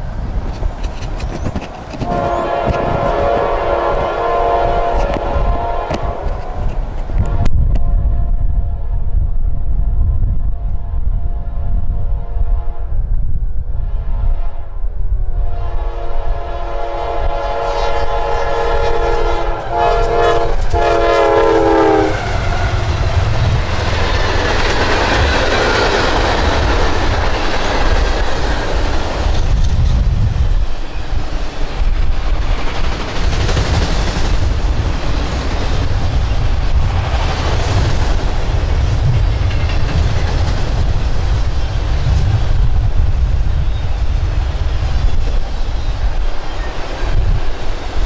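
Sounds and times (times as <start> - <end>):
train wheels rumbling on rail: 0.0 - 48.0
locomotive air horn chord: 2.0 - 6.5, 15.3 - 22.3.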